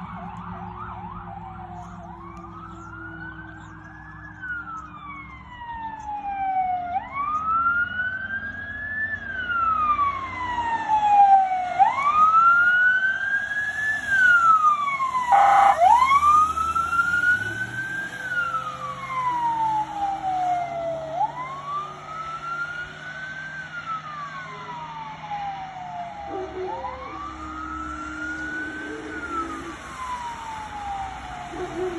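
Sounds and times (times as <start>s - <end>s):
emergency vehicle siren wailing: 0.0s - 31.9s
vehicle engines rumbling: 0.0s - 31.9s
short loud siren burst: 15.2s - 17.6s.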